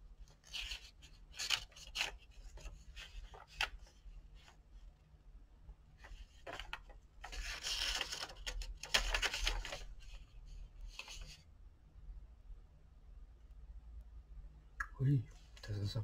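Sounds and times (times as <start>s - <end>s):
paper pages rustling: 0.3s - 4.6s, 6.0s - 11.4s.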